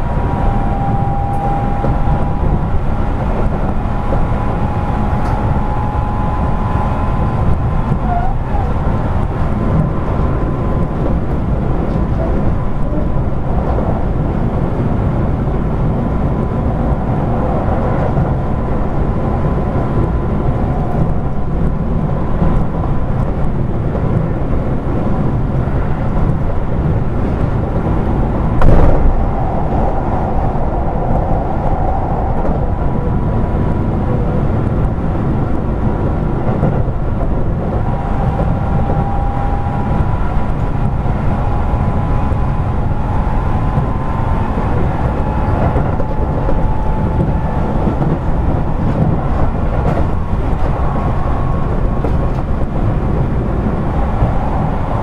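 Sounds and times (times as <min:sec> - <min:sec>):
faint whining tones: 0:00.0 - 0:09.1, 0:37.4 - 0:55.0
train wheels rumbling on rail: 0:00.0 - 0:55.0.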